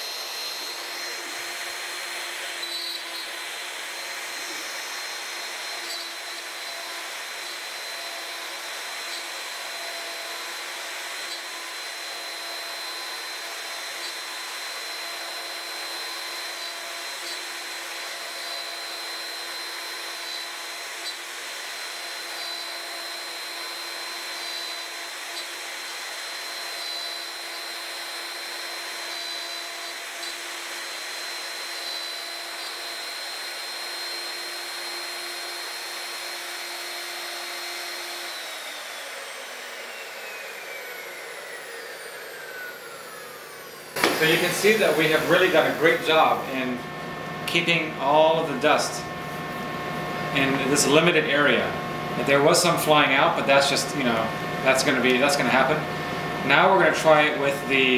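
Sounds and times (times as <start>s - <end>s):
router spindle high whine: 0.0s - 57.9s
rush of cutting: 44.0s - 57.9s.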